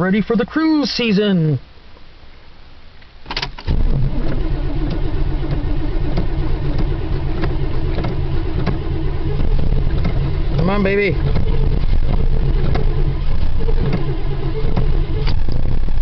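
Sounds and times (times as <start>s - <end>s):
starter click: 3.3s - 8.8s, 9.4s - 15.7s
engine cranking: 3.3s - 16.0s.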